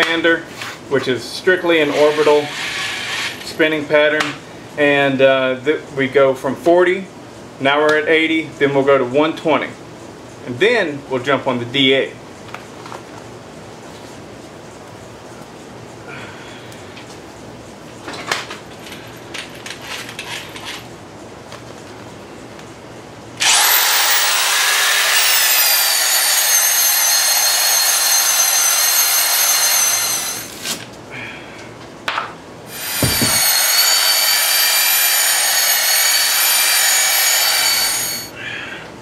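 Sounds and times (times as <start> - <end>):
electric sander whining: 23.4 - 30.6, 32.7 - 38.3.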